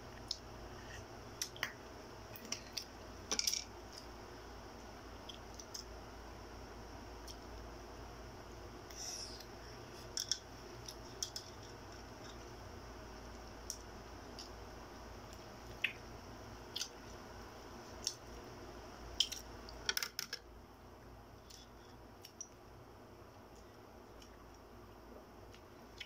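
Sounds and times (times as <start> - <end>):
low steady hum: 0.0 - 26.0
eating and food handling: 8.8 - 12.6.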